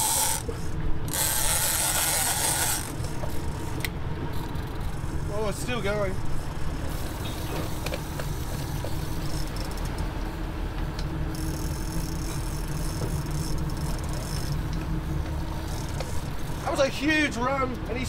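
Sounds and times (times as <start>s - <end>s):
fishing reel drag buzzing: 0.0s - 5.2s, 11.3s - 14.7s, 15.5s - 16.8s
boat engine running: 0.0s - 18.0s
wind: 0.0s - 18.0s.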